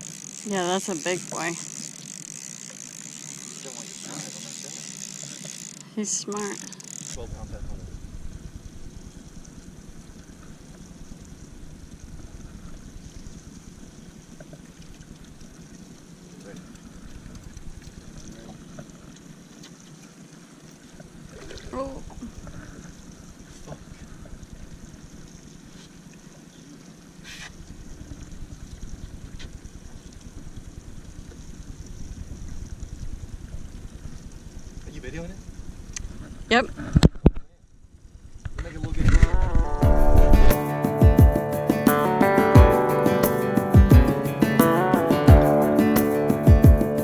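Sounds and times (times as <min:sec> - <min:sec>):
outboard motor idling: 0:00.0 - 0:36.6
wind buffeting microphone: 0:38.4 - 0:40.5.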